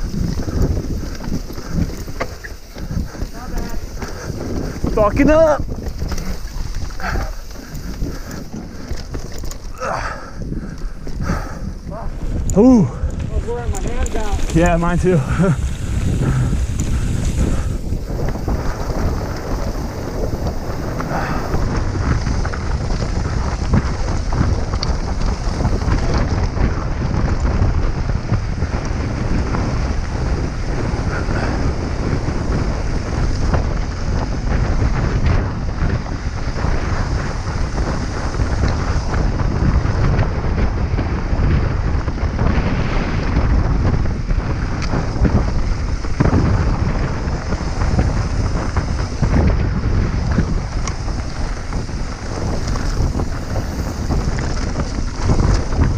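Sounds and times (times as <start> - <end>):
bike clattering over stones: 0.0 - 27.7, 41.4 - 55.9
wind rushing over microphone: 0.0 - 55.9.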